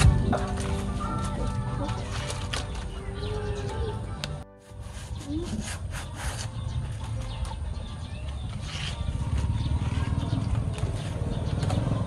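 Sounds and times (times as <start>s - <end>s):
palm leaf rustling: 0.0s - 7.6s.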